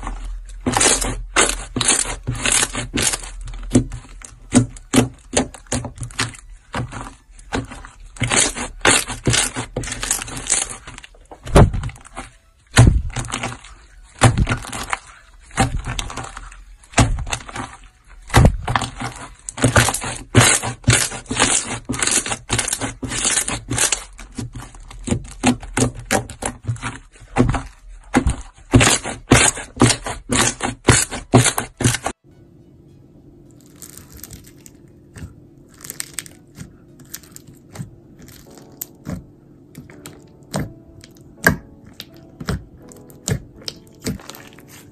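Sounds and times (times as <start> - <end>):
slime squelching and popping: 0.0 - 32.1, 33.6 - 44.9
steady low hum: 31.9 - 44.9.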